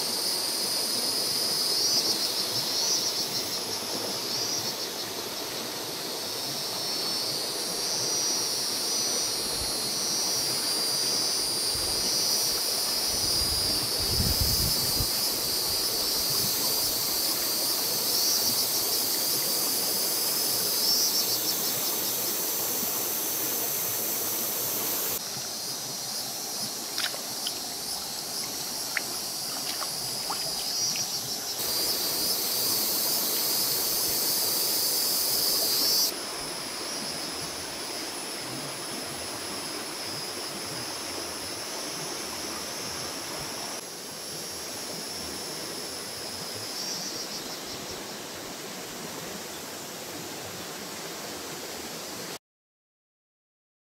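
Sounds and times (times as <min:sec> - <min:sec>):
high-pitched insect buzz: 0:00.0 - 0:36.2
water splashing and trickling: 0:21.4 - 0:33.3.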